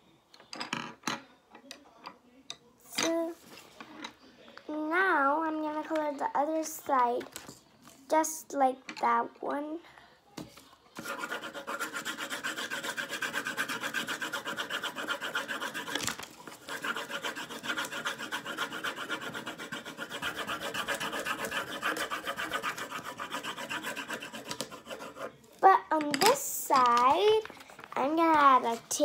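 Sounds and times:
pencil scribbling on paper: 0:11.0 - 0:25.4.

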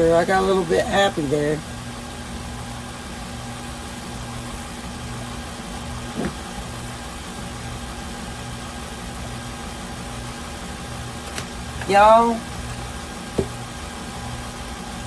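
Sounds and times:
beater turning through batter: 0:00.0 - 0:15.0
stand mixer motor hum: 0:00.0 - 0:15.0.

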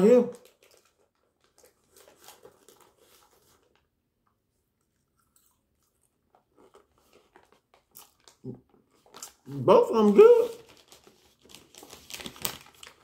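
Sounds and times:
popcorn chewing crunches: 0:00.3 - 0:03.9, 0:04.5 - 0:09.6.

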